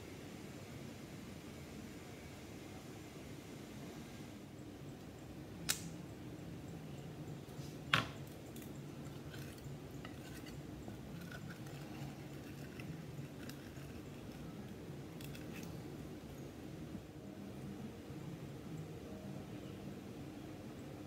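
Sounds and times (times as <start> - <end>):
sharp click: 5.6 - 5.9
knife scraping paint on glass: 9.2 - 14.2.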